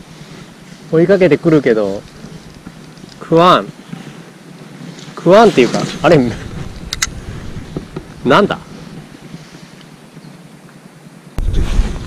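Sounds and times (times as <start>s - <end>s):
faint outdoor hiss: 0.0s - 12.0s
wind buffeting microphone: 4.4s - 10.3s, 11.4s - 12.0s.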